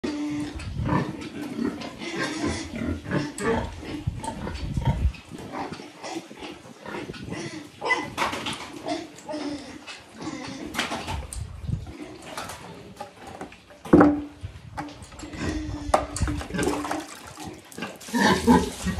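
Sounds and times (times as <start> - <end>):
pig grunting: 0.0 - 11.2, 15.2 - 18.9.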